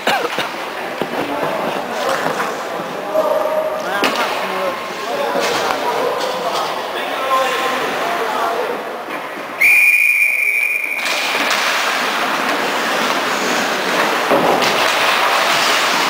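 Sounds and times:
skates and sticks scraping ice: 0.2 - 9.5, 10.9 - 16.0
referee whistle blast: 9.6 - 11.1.

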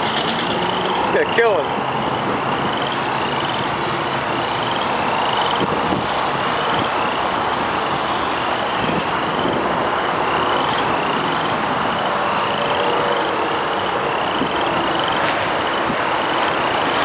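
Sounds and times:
road traffic: 0.0 - 17.0
wind: 0.0 - 17.0.

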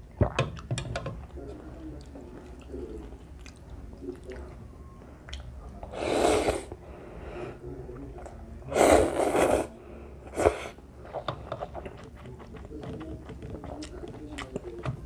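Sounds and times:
soft chewing: 0.1 - 6.8, 7.7 - 15.0
person slurping noodles: 6.0 - 6.7, 8.7 - 9.7, 10.3 - 10.8.

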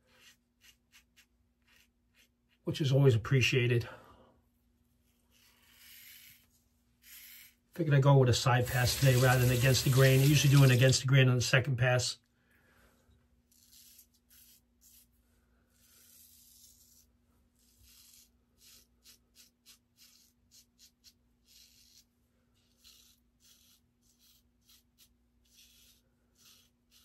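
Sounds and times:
razor scraping stubble: 0.0 - 2.6, 5.1 - 11.0, 13.5 - 15.1, 15.8 - 27.0.

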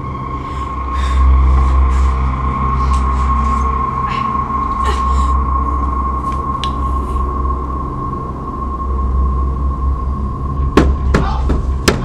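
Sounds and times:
low rumbling hum: 0.0 - 12.0.

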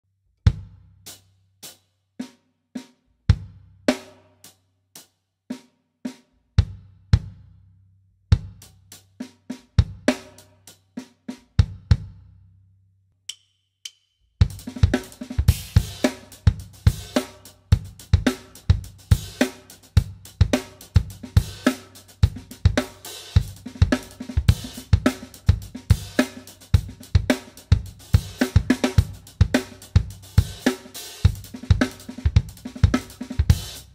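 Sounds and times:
drum kit playing: 8.3 - 12.1, 14.4 - 33.9.

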